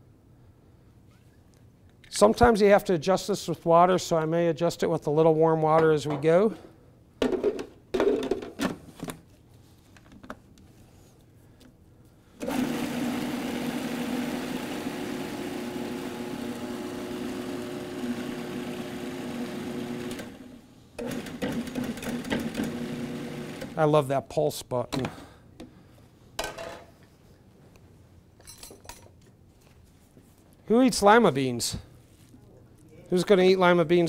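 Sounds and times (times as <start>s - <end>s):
food processor motor running: 12.4s - 23.8s.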